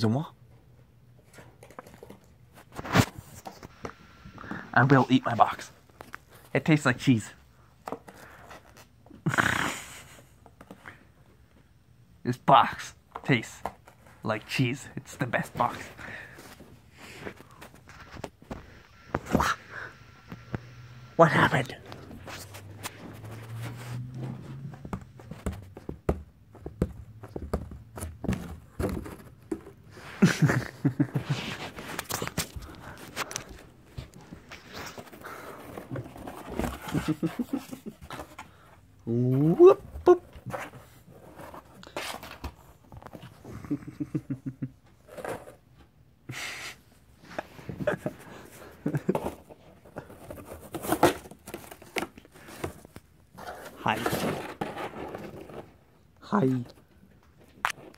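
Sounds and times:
cardboard box scraping on carpet: 20.3 - 25.9, 34.0 - 38.4.

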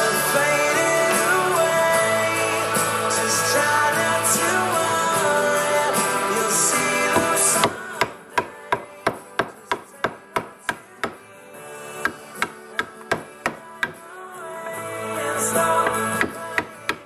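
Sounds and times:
chisel knocking into wood: 7.1 - 11.2, 12.0 - 14.0.

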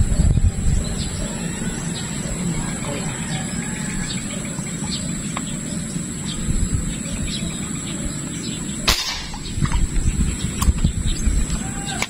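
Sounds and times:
birds chirping: 0.0 - 12.0
insects chirping: 0.0 - 12.0
air rifle shot: 8.8 - 9.8.

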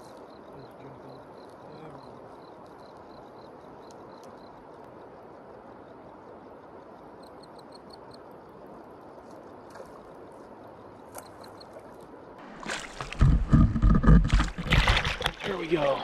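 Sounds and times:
river water flowing: 8.6 - 16.0
splashing and knocking on water: 12.4 - 16.0.

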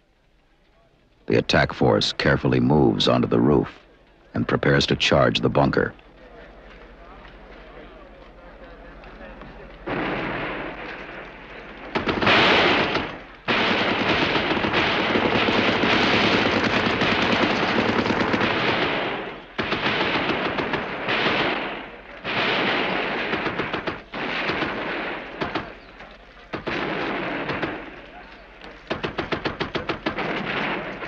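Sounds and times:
heavy gunfire: 9.8 - 31.0.

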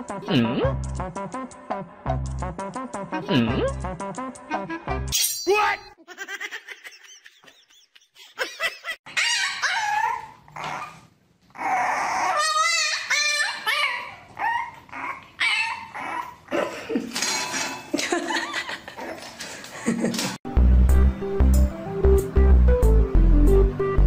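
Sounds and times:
puppy yapping and whining: 9.1 - 16.5.

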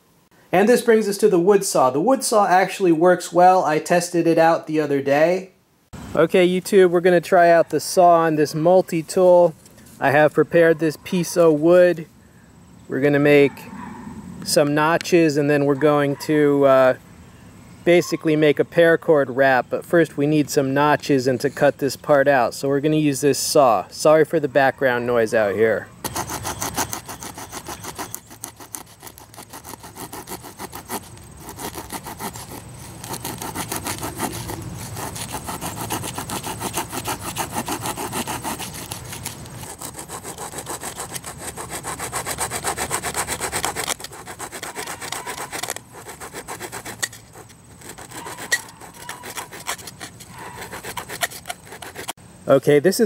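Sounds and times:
small saw cutting wood: 26.0 - 52.2.

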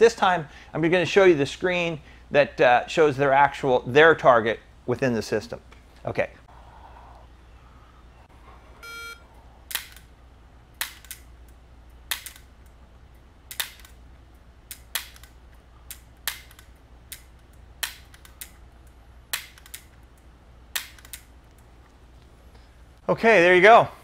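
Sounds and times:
electronic beep: 8.8 - 9.2
air pistol dry-fire clicks: 9.7 - 10.1, 13.5 - 14.0, 14.7 - 21.6.

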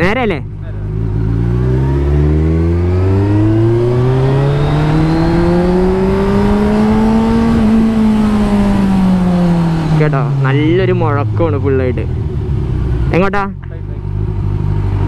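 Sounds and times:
motorcycle engine accelerating: 0.0 - 15.0
wind noise on microphone: 3.8 - 10.0.

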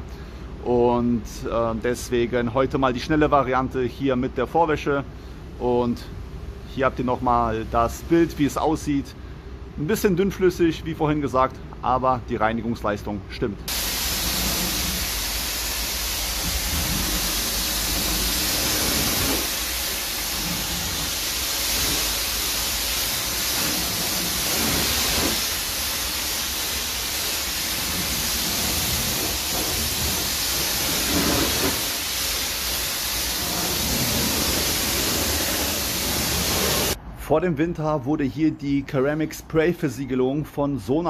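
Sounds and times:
pressure washer spraying water: 13.7 - 37.0.

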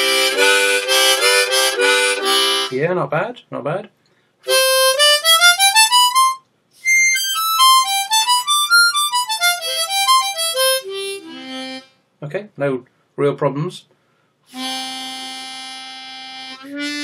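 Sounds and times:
harmonica single notes: 0.0 - 2.8, 4.4 - 12.0, 14.5 - 17.0.

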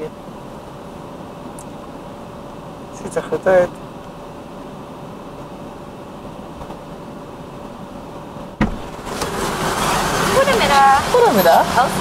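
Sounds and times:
car cabin hum: 0.0 - 12.0
sharp thump: 8.6 - 9.0.

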